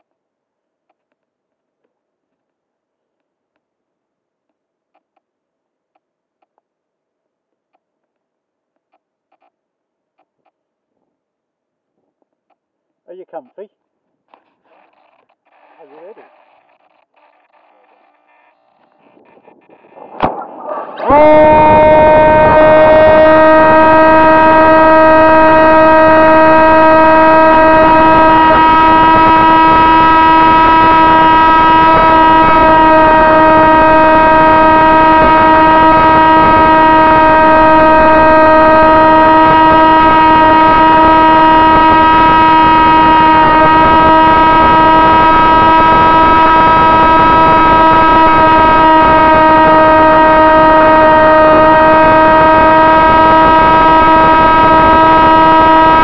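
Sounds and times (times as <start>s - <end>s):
electric motor and propeller whining: 21.6s - 56.0s.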